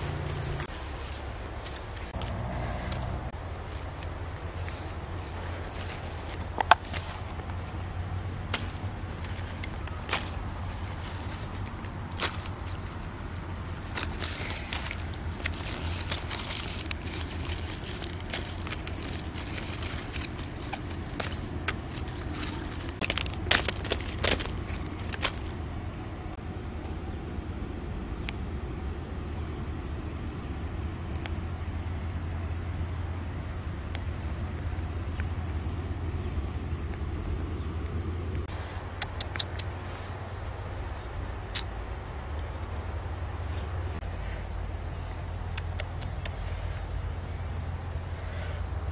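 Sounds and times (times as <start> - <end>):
leaves and stems rustling: 0.0 - 25.7.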